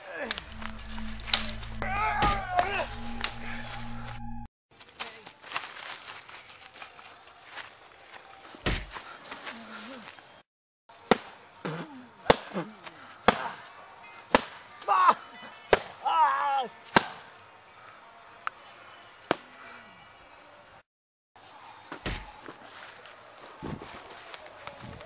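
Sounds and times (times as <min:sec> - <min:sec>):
man crying out in pain: 0:01.8 - 0:02.9
sharp punch whacks: 0:08.7 - 0:08.9.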